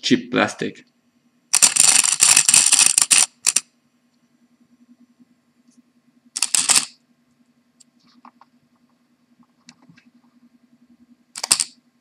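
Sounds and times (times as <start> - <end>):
loud rattling buzz: 1.5 - 3.6, 6.4 - 6.9.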